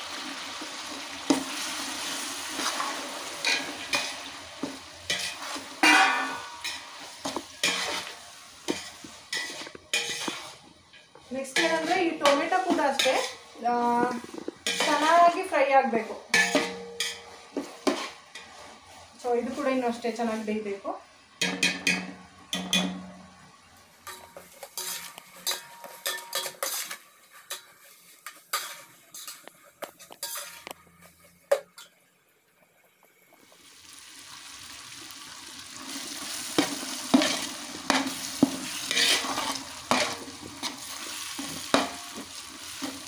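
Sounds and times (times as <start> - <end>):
onions frying in oil: 0.0 - 43.0
spoon scraping a pot: 5.1 - 15.2, 16.3 - 18.7, 24.1 - 31.9, 36.6 - 42.1.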